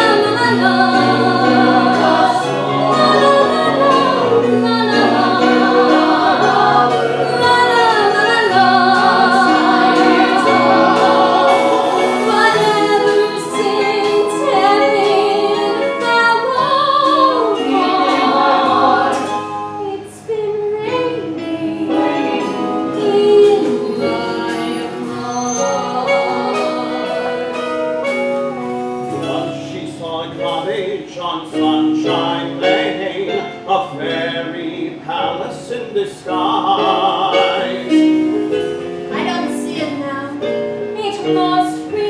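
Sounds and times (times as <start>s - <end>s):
live band playing a show tune: 0.0s - 20.0s, 20.9s - 30.9s
vocal ensemble singing: 0.0s - 42.0s.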